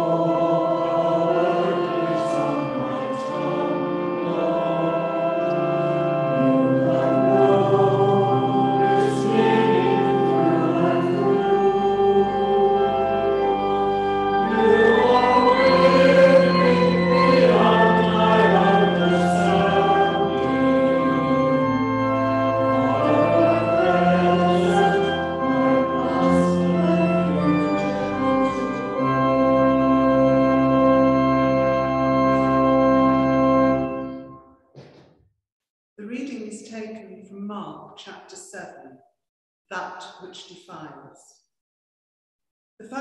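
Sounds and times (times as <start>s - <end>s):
choir singing a hymn: 0.0s - 33.8s
organ chords: 0.0s - 35.0s.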